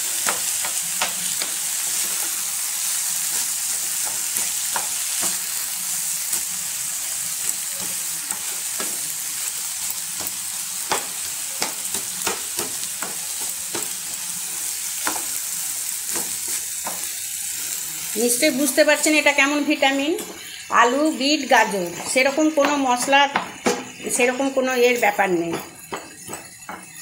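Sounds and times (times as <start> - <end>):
food sizzling in a pan: 0.0 - 27.0
spatula scraping and tapping pan: 0.2 - 5.7, 7.4 - 9.1, 10.2 - 17.7, 20.2 - 20.6, 21.8 - 27.0.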